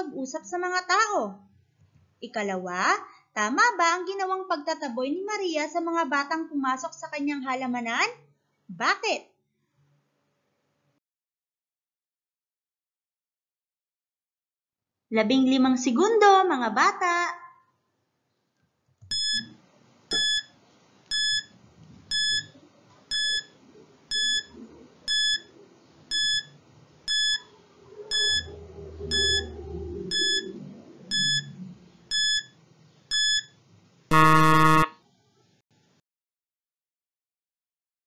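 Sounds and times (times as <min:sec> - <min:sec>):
low buzzer: 0:19.1 - 0:19.5, 0:20.1 - 0:20.5, 0:21.1 - 0:21.5, 0:22.1 - 0:22.5, 0:23.1 - 0:23.5, 0:24.1 - 0:24.5, 0:25.1 - 0:25.5, 0:26.1 - 0:26.5, 0:27.1 - 0:27.4, 0:28.1 - 0:28.5, 0:29.1 - 0:29.5, 0:30.1 - 0:30.5, 0:31.1 - 0:35.0
short high timer beeps: 0:19.1 - 0:19.5, 0:20.1 - 0:20.5, 0:21.1 - 0:21.5, 0:22.1 - 0:22.5, 0:23.1 - 0:23.5, 0:24.1 - 0:24.5, 0:25.1 - 0:25.5, 0:26.1 - 0:26.5, 0:27.1 - 0:27.5, 0:28.1 - 0:28.5, 0:29.1 - 0:29.5, 0:30.1 - 0:30.5, 0:31.1 - 0:31.5, 0:32.1 - 0:32.5, 0:33.1 - 0:33.5.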